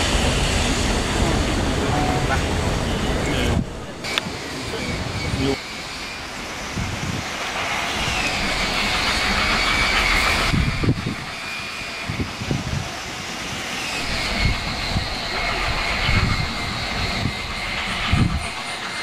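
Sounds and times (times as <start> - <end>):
steam locomotive exhaust rushing: 0.0 - 19.0
low thumps: 14.0 - 18.7.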